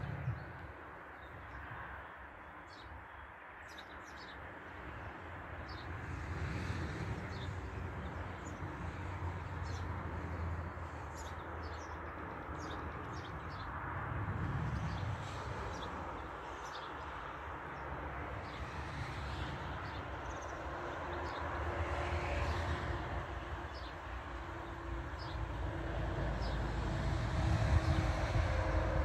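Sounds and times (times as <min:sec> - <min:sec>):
distant engine rumble: 0:24.4 - 0:29.0.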